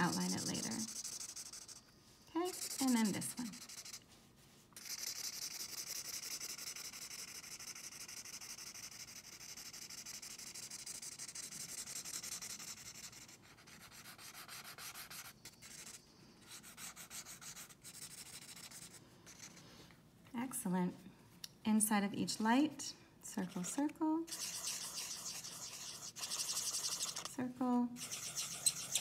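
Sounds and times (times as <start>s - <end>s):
marker scribbling on paper: 0.0s - 4.2s, 4.8s - 19.6s, 23.4s - 27.3s, 28.0s - 29.0s.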